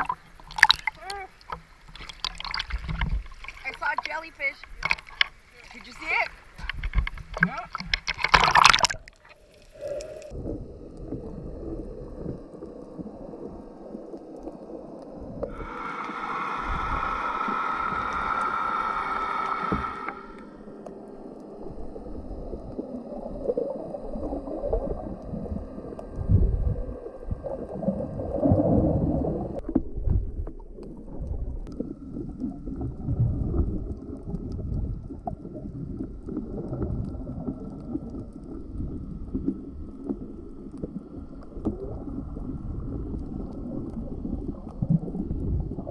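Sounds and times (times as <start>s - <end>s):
steady pitched hum: 0.0s - 29.8s
muffled underwater sloshing: 0.0s - 45.9s.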